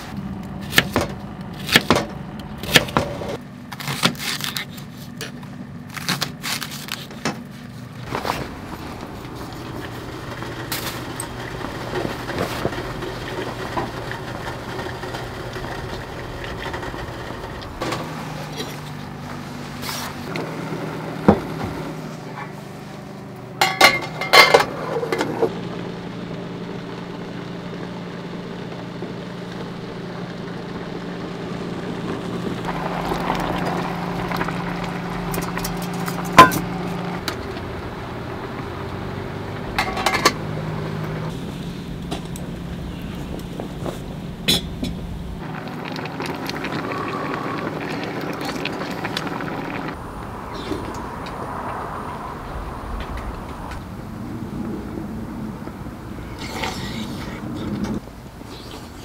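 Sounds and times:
electric hum: 0:07.9 - 0:21.3, 0:25.4 - 0:58.5
cooking utensils clinking: 0:23.6 - 0:25.3, 0:39.7 - 0:40.5.

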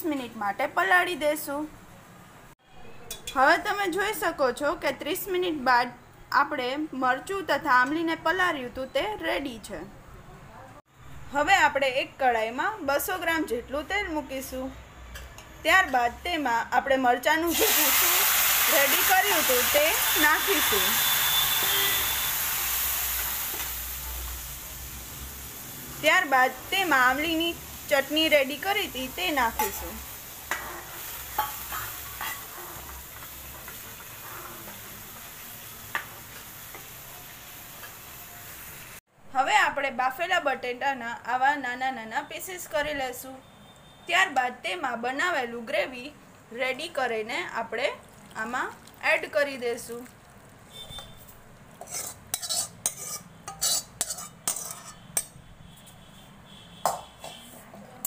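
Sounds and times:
spoon scraping and clinking on pan: 0:03.1 - 0:03.4, 0:29.6 - 0:34.9, 0:51.0 - 0:55.4
gravy sizzling in hot oil: 0:17.4 - 0:39.0, 0:46.7 - 0:55.3.

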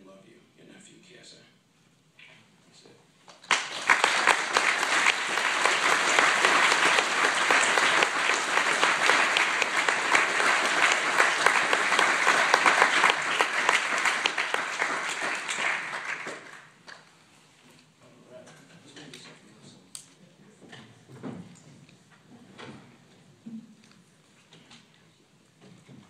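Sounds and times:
audience applauding: 0:03.3 - 0:17.1.

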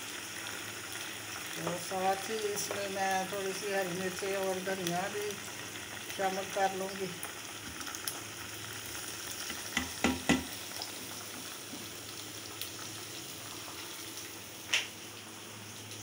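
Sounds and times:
chicken sizzling in a pan: 0:00.0 - 0:16.0
spatula knocking on pan: 0:09.7 - 0:10.6.

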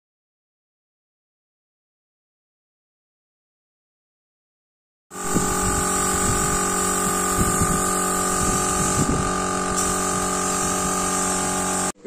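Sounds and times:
hiss of spraying air: 0:05.2 - 0:12.0
spray gun motor whine: 0:05.2 - 0:12.0.

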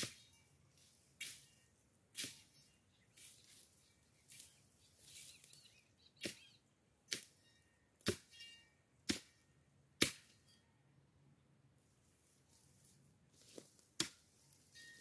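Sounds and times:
machete chopping brush: 0:00.0 - 0:00.4, 0:01.2 - 0:01.5, 0:02.1 - 0:02.6, 0:06.2 - 0:06.5, 0:07.1 - 0:07.4, 0:08.0 - 0:08.3, 0:09.0 - 0:09.4, 0:10.0 - 0:10.4, 0:13.5 - 0:14.2
rustling of cut vegetation: 0:00.0 - 0:07.4, 0:11.8 - 0:15.0.

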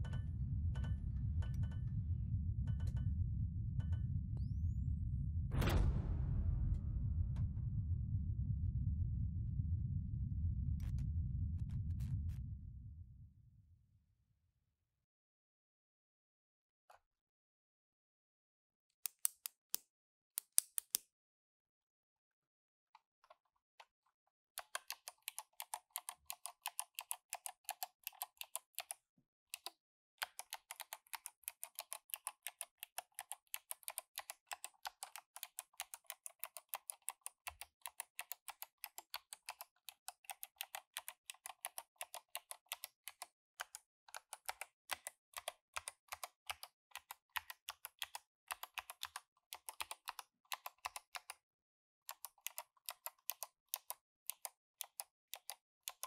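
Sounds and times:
mechanical keyboard typing: 0:24.6 - 0:29.0, 0:29.6 - 0:51.4, 0:52.1 - 0:56.0.

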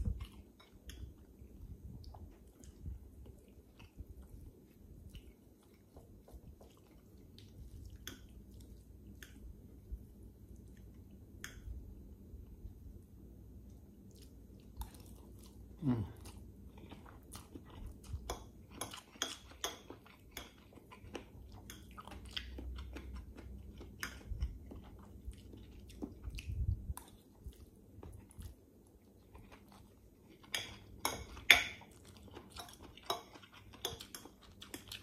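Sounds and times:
person chewing and slurping noodles: 0:14.1 - 0:35.0.

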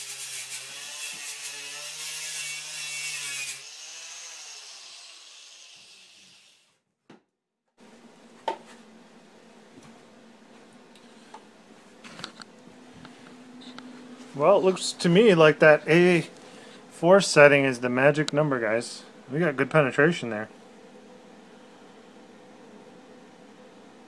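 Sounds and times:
angle grinder on steel: 0:00.0 - 0:06.6.

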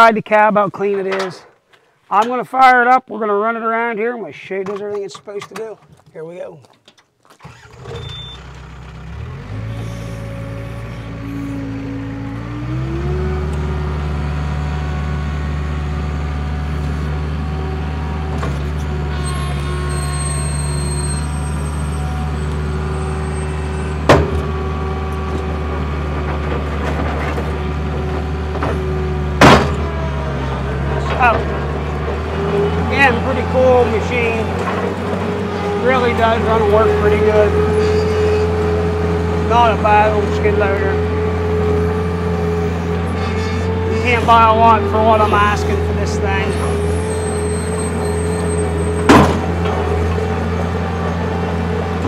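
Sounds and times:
diesel engine starting and idling: 0:07.3 - 0:52.0
loud sharp clunks: 0:24.0 - 0:24.5, 0:29.4 - 0:30.0, 0:49.0 - 0:49.8.

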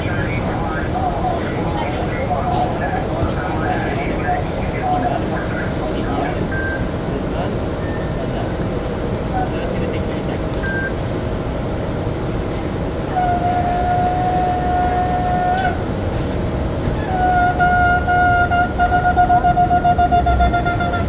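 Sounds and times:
shofar blasts: 0:17.0 - 0:21.0.

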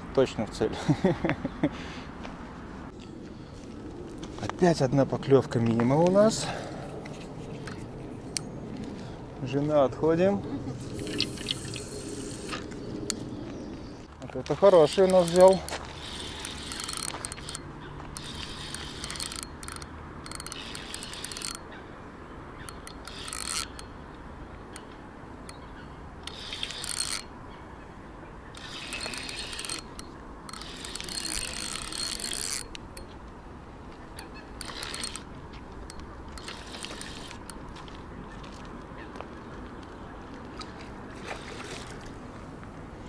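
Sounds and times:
fishing reel drag clicking: 0:14.7 - 0:21.7, 0:22.6 - 0:23.9, 0:26.2 - 0:27.3, 0:28.6 - 0:33.1, 0:34.2 - 0:37.6.

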